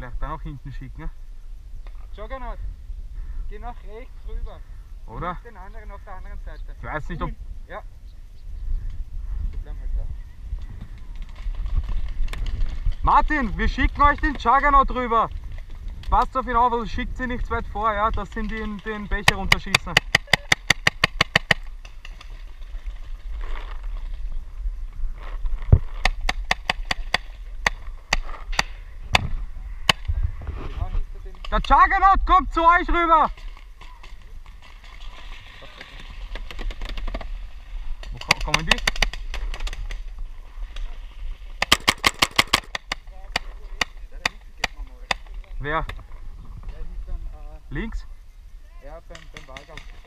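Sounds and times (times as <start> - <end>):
paintball marker shots: 19.2 - 22.3, 38.0 - 39.9, 41.6 - 45.3.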